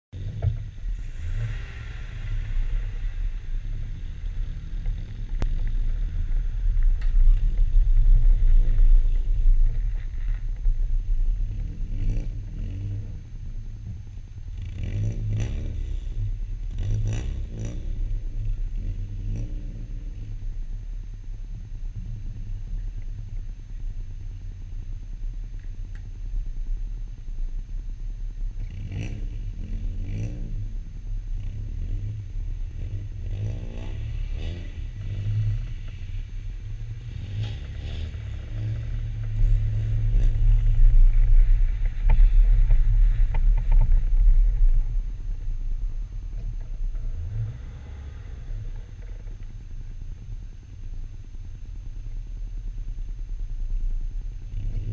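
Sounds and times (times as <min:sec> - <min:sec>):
car engine rumbling and revving: 0:00.1 - 0:54.9.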